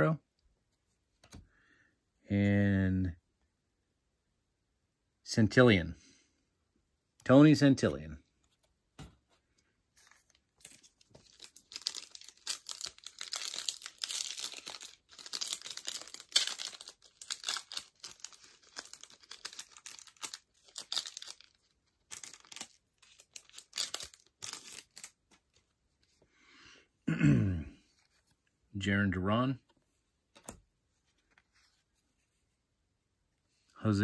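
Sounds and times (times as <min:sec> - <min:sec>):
man talking: 0:00.0 - 0:00.2, 0:02.3 - 0:03.2, 0:05.2 - 0:06.0, 0:07.2 - 0:08.2, 0:28.8 - 0:29.6, 0:33.8 - 0:34.0
foil wrapper crinkling and tearing: 0:10.1 - 0:25.4.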